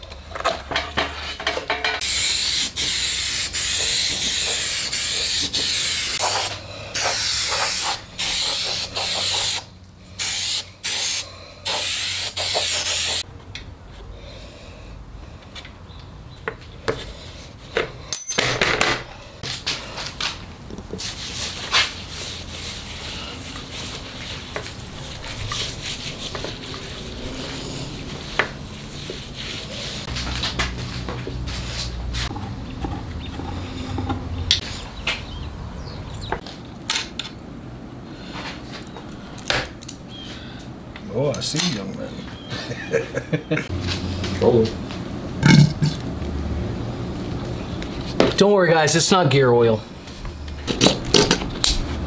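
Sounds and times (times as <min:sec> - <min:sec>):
aerosol spray can hissing: 0:02.0 - 0:13.2
hands rubbing a wooden board: 0:20.9 - 0:30.5.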